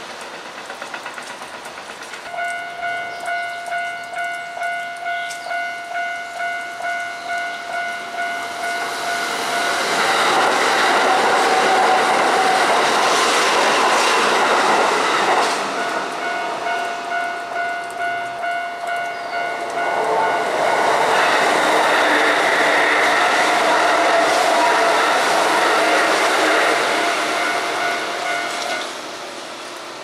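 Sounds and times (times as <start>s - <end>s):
electric train running past: 0.0s - 30.0s
level-crossing bell ringing: 2.3s - 10.0s, 15.8s - 20.5s, 27.2s - 28.8s.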